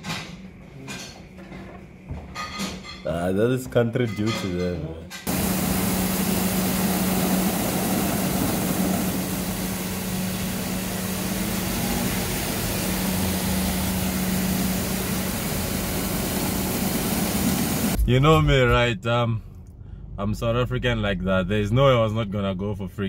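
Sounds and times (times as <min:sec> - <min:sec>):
traffic engine hum: 0:05.3 - 0:18.0
water jet rushing hiss: 0:05.3 - 0:18.0.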